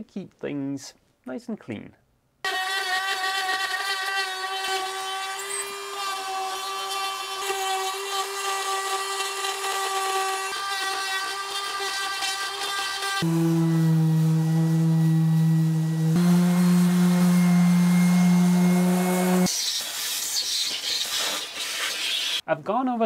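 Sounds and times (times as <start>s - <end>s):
power tool whining: 2.5s - 19.5s.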